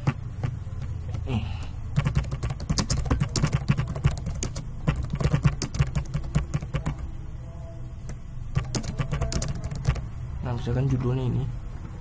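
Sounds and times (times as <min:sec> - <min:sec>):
steady low hum: 0:00.0 - 0:12.0
computer keyboard typing: 0:01.9 - 0:07.1, 0:08.0 - 0:10.1.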